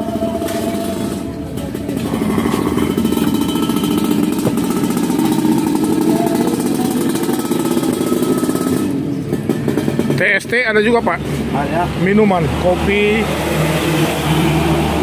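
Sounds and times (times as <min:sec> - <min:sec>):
small engine running: 0:00.0 - 0:10.2.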